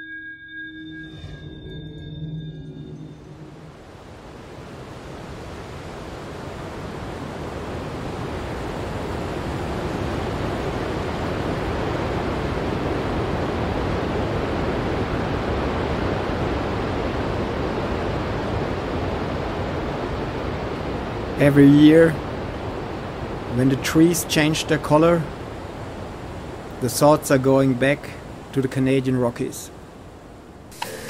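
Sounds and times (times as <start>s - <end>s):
steady rushing noise: 1.2s - 31.0s.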